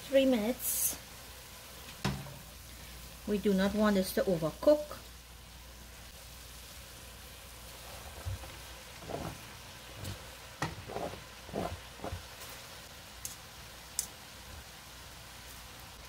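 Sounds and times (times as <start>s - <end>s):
faint sizzling: 0.0s - 16.0s
spatula scraping cutting board: 9.0s - 12.3s.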